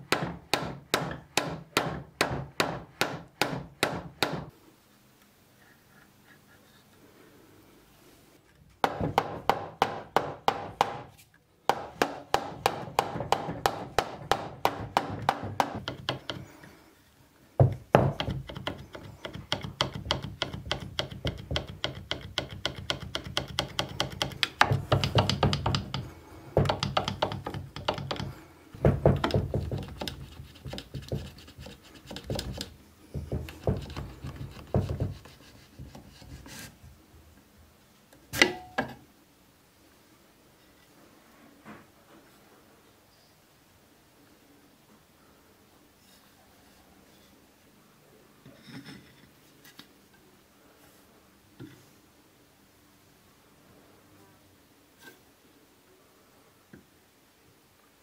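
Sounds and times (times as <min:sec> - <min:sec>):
rubber mallet knocking on wood: 0:00.0 - 0:04.5, 0:08.8 - 0:11.1, 0:11.7 - 0:16.4, 0:17.6 - 0:36.0.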